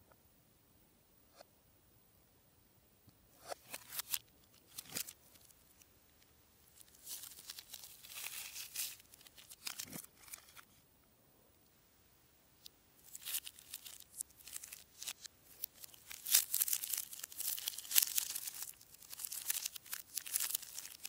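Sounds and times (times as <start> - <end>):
plastic wrapper crinkling: 3.5 - 10.7, 12.6 - 21.0.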